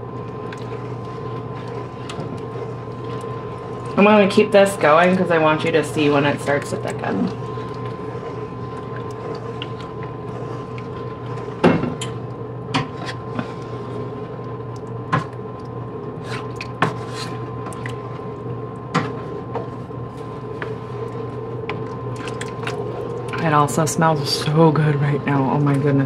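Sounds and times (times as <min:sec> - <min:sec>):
steady low hum: 0:00.0 - 0:26.0
wooden spoon scraping a pan: 0:12.8 - 0:14.0, 0:16.2 - 0:17.5.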